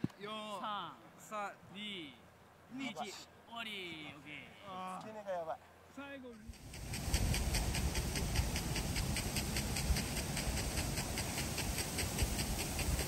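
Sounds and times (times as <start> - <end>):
sprinkler ticking: 6.3 - 13.0
wind on microphone: 6.5 - 13.0.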